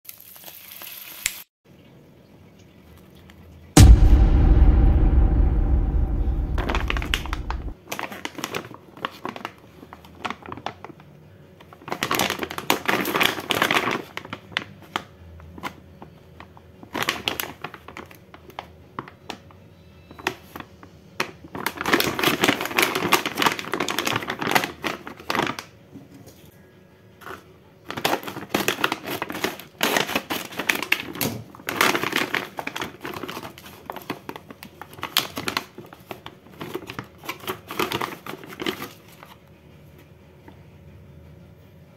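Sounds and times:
low rumble: 3.8s - 7.7s.

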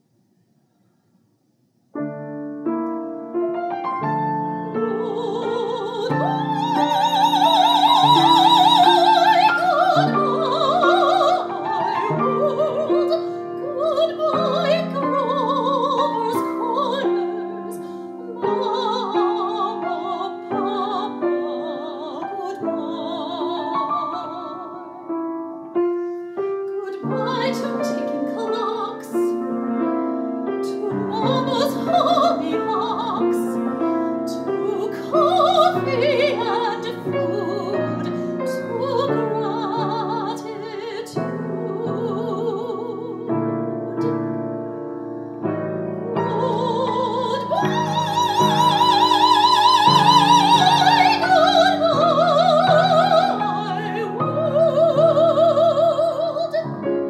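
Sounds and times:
piano accompaniment: 2.0s - 57.0s
woman singing opera: 4.4s - 25.2s, 26.7s - 44.5s, 46.0s - 57.0s.

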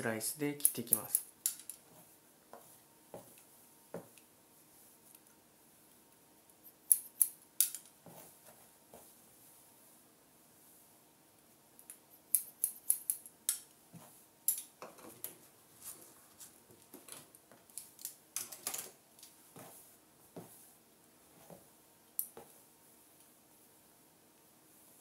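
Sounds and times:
scissors snipping hair: 0.6s - 1.6s, 6.7s - 7.8s, 11.8s - 13.7s.

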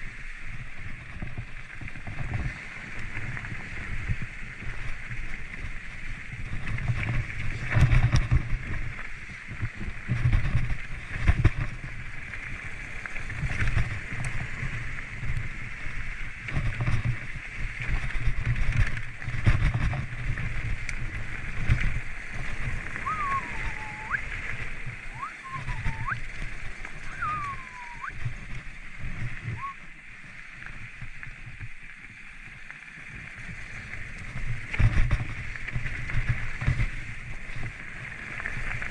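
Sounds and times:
wind buffeting microphone: 0.0s - 29.8s
bike knocking and rattling: 0.6s - 23.1s, 33.3s - 38.9s
sliding whistles: 23.0s - 24.3s, 25.1s - 26.3s, 27.0s - 28.2s, 29.5s - 29.8s.

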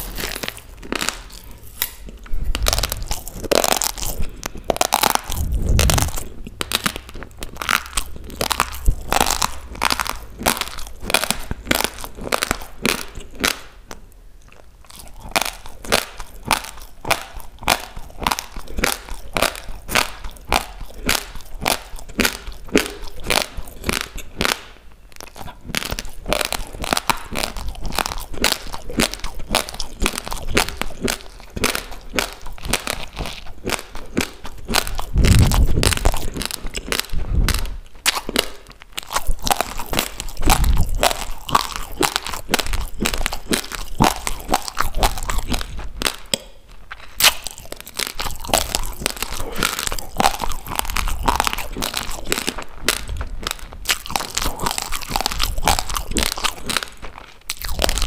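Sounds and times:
raw rice grains crunched and chewed: 0.0s - 13.7s, 14.4s - 58.0s.

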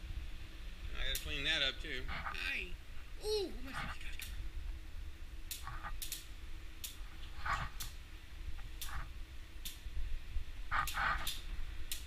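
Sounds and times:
sharp clicks: 5.4s - 7.0s, 7.6s - 8.0s, 8.6s - 9.8s, 10.7s - 12.0s.

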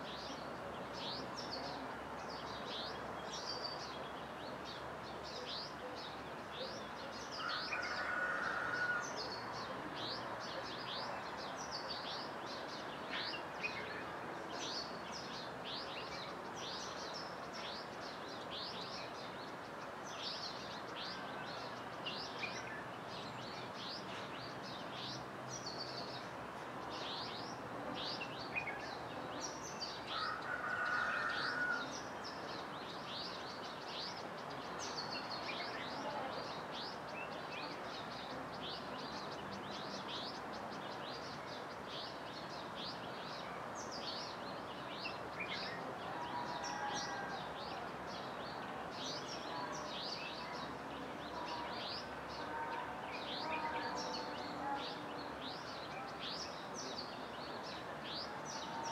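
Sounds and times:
steady background noise: 0.0s - 58.9s.

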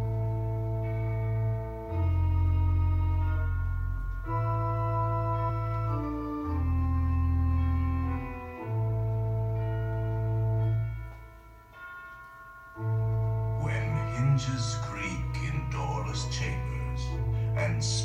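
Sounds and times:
slow organ music: 0.0s - 18.0s.

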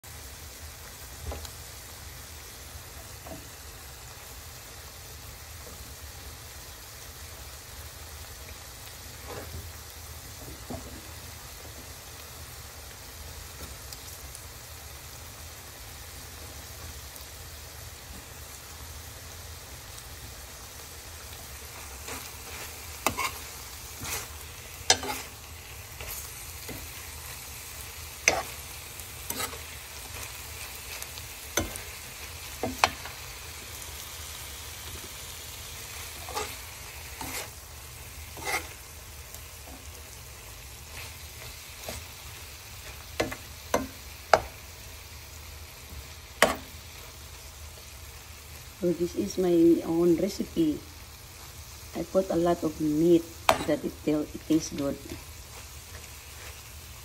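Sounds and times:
meat sizzling in a pan: 0.0s - 57.0s
spatula scraping and knocking pan: 21.8s - 27.4s, 28.2s - 30.3s, 31.6s - 32.0s, 32.6s - 33.2s, 36.1s - 37.6s, 38.3s - 38.8s, 42.8s - 44.6s, 46.4s - 46.7s.

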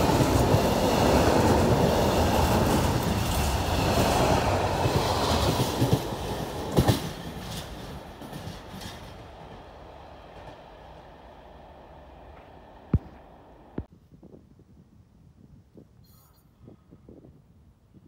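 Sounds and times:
train wheels clacking on rails: 0.0s - 13.8s.

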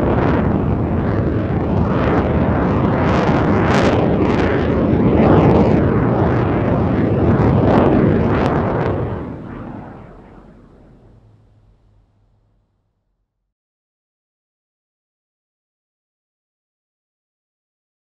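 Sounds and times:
jet aircraft rumble: 0.0s - 12.9s.

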